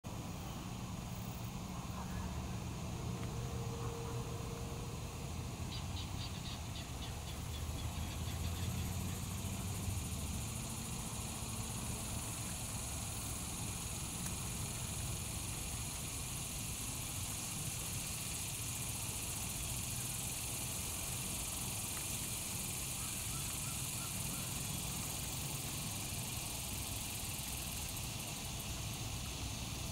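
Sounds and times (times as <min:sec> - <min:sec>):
high hiss: 0:00.1 - 0:29.9
rapid chirping trill: 0:05.7 - 0:13.2.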